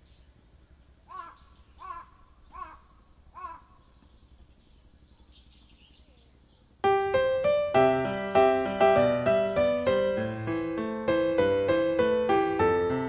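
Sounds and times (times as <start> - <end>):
bird calling harshly: 1.1 - 4.0
faint high chirps: 1.1 - 6.9
loud piano music: 6.8 - 13.0.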